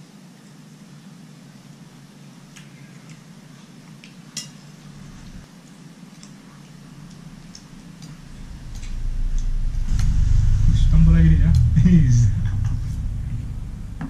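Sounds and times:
low rumble: 0:04.9 - 0:05.4, 0:06.8 - 0:14.0.

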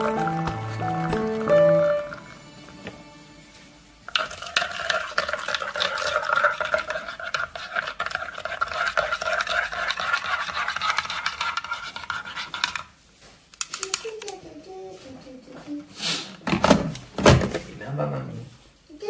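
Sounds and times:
spoon stirring in ceramic mug: 0:04.1 - 0:12.9.

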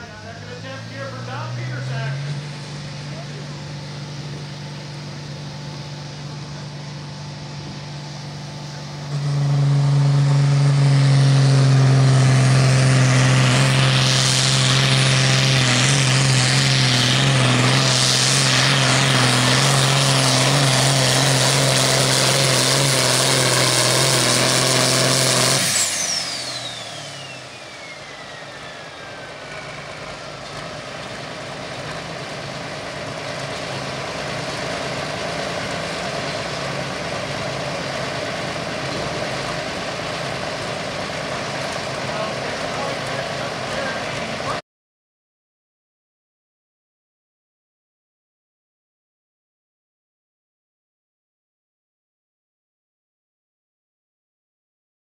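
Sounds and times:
pulling tractor diesel engine: 0:00.0 - 0:44.6
turbo whistling down: 0:17.8 - 0:30.6.

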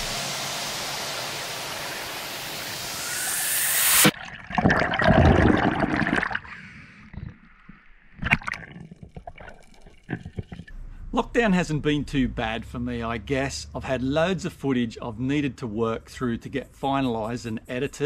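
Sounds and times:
underwater water rushing: 0:00.0 - 0:06.5
water bubbling and sloshing: 0:04.1 - 0:10.7.

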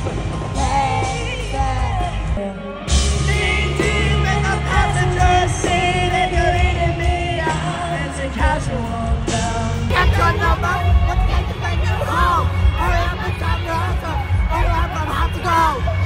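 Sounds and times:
live pop-rock band: 0:00.0 - 0:16.0
woman singing: 0:00.4 - 0:13.7.

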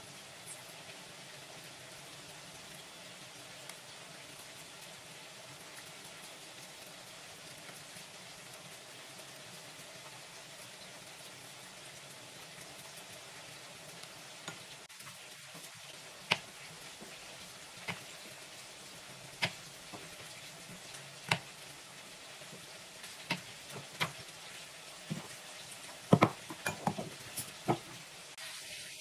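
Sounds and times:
faint sizzle of frying: 0:00.0 - 0:29.0.

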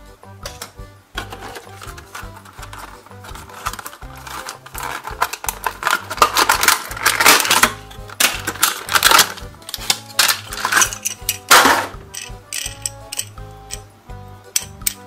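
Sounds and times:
background music: 0:00.0 - 0:15.0
plastic packaging crackling: 0:01.2 - 0:12.8.

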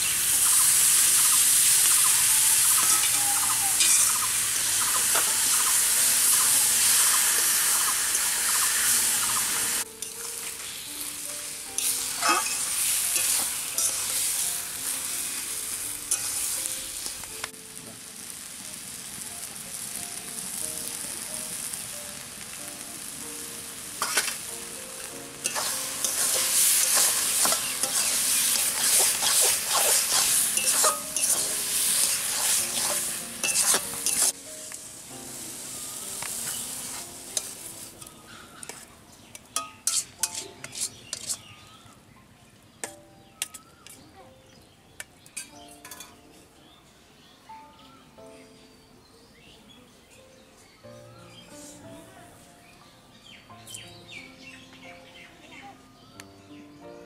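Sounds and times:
food sizzling in a pan: 0:00.0 - 0:41.9
metal spatula scraping a pan: 0:03.8 - 0:04.2, 0:11.8 - 0:14.4, 0:16.1 - 0:16.6, 0:24.0 - 0:24.4, 0:25.4 - 0:34.4, 0:36.4 - 0:41.6.

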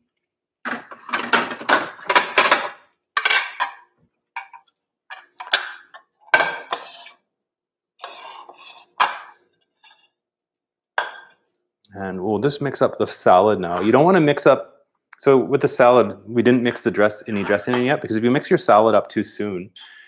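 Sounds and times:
dishes clattering: 0:00.6 - 0:07.2, 0:08.0 - 0:09.4, 0:11.0 - 0:11.4.

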